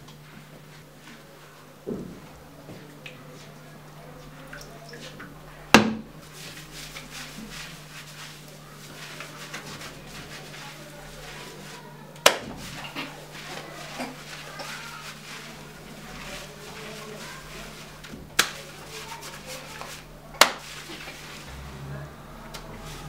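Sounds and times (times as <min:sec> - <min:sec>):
steady low hum: 0:00.0 - 0:23.0
faint rustling: 0:06.2 - 0:23.0.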